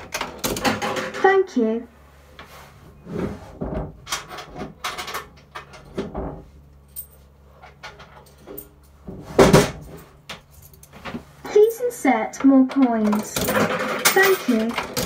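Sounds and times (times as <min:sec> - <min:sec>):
coins clattering in mechanism: 0:13.0 - 0:15.0.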